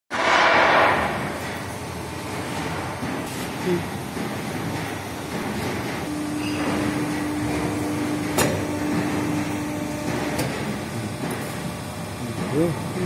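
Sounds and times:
machine humming: 0:00.2 - 0:13.0.

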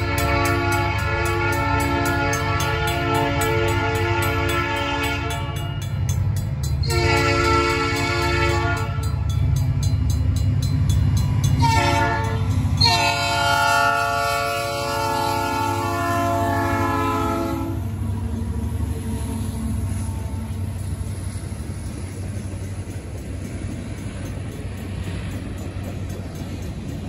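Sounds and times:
locomotive air horn blasts: 0:00.0 - 0:05.8, 0:06.8 - 0:09.1, 0:11.6 - 0:17.9
crossing bell ringing: 0:00.0 - 0:18.0, 0:18.6 - 0:27.0
low rumble of locomotives: 0:00.0 - 0:27.0.

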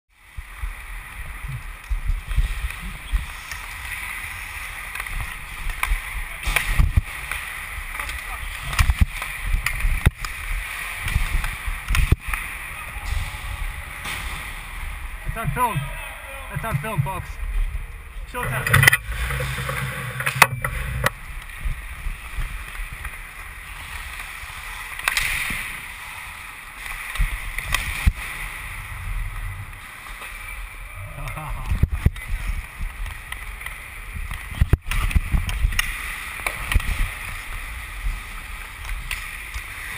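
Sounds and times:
skate blades scraping ice: 0:00.4 - 0:15.9, 0:18.4 - 0:30.9
stick and puck clacks: 0:01.1 - 0:14.4, 0:18.4 - 0:26.0, 0:26.7 - 0:28.2, 0:31.6 - 0:39.9
sticks clicking on puck: 0:04.8 - 0:10.4, 0:11.0 - 0:12.5
low microphone rumble: 0:08.4 - 0:24.0
low thumps: 0:12.9 - 0:23.1.

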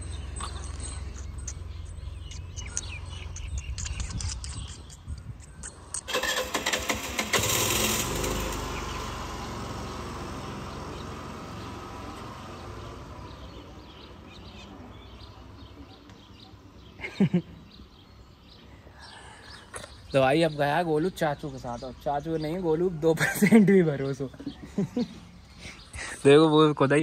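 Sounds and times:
motor scooter engine pulling away: 0:06.1 - 0:15.6.

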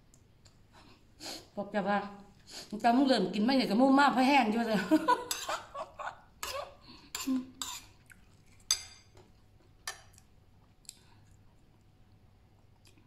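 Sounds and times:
spoon clinking against ceramic bowls: 0:08.7 - 0:09.1.

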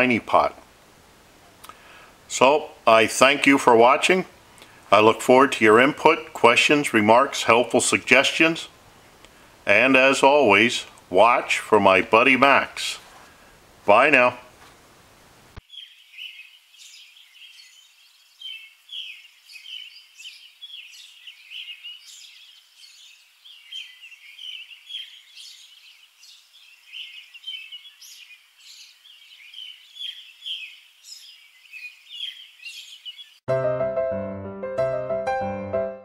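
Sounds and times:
small birds chirping: 0:15.5 - 0:33.5.

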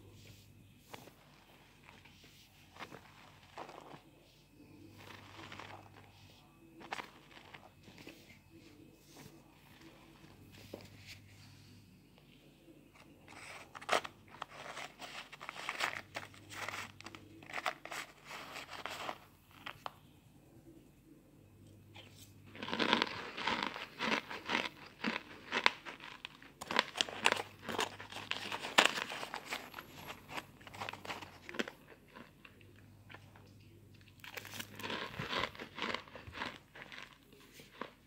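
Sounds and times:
spoon crunching powder in a pan: 0:00.9 - 0:04.1, 0:04.7 - 0:08.4, 0:12.9 - 0:20.0, 0:22.5 - 0:38.0.

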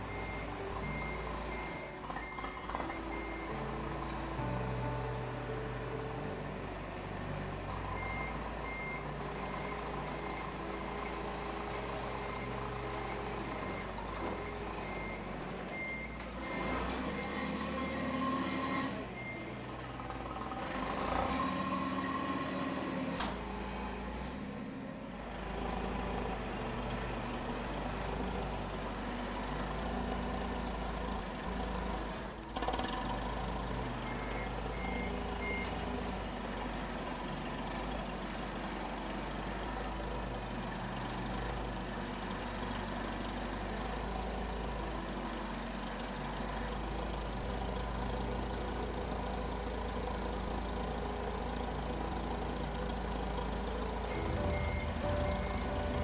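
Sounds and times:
steady low bass: 0:54.0 - 0:56.0
music of held tones: 0:54.1 - 0:56.0.

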